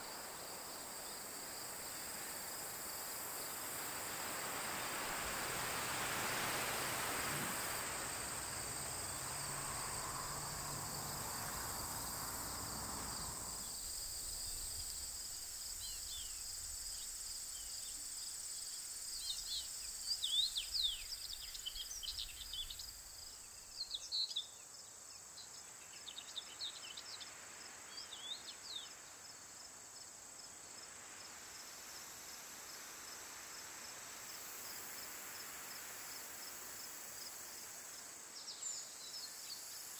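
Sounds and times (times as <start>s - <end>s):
insects trilling: 0.0s - 24.2s
soft rushing noise: 3.7s - 13.9s.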